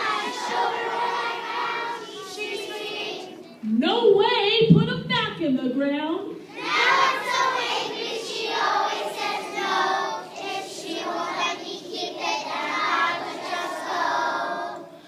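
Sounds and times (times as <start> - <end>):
children's choir singing: 0.0 - 3.6, 6.4 - 15.0.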